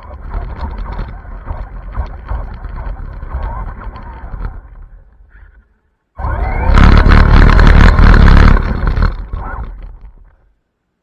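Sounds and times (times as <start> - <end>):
rc car motor whine: 6.2 - 10.3
rc car rushing past: 6.2 - 10.3.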